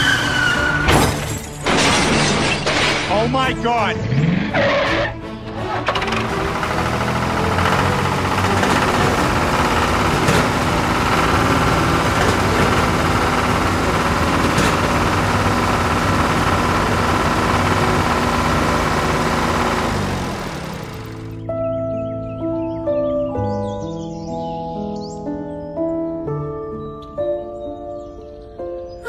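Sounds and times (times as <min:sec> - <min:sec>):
tractor engine running: 0:00.0 - 0:21.5.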